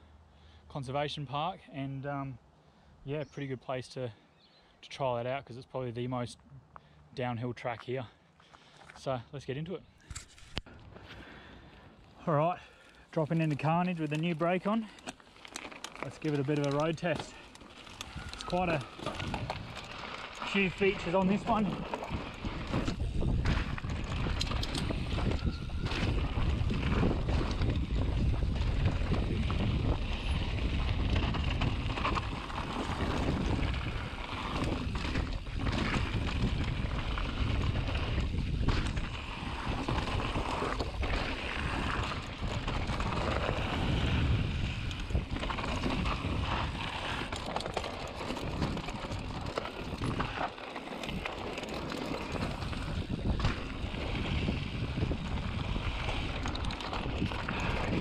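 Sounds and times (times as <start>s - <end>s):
bike tyres crunching over dirt: 10.1s - 58.0s
bike rattling over bumps: 13.2s - 58.0s
wind rush on microphone: 18.0s - 50.5s, 51.1s - 58.0s.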